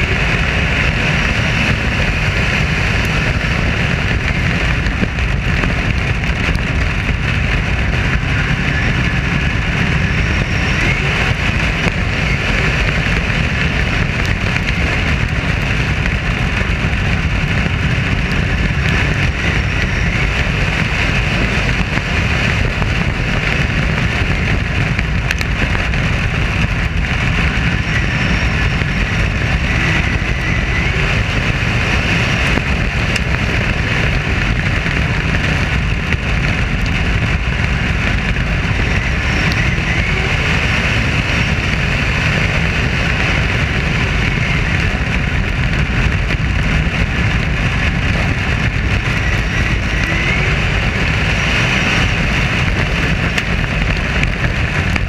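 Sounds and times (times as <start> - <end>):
race car engine at speed: 0.0 - 55.0
wind rushing over microphone: 0.0 - 55.0.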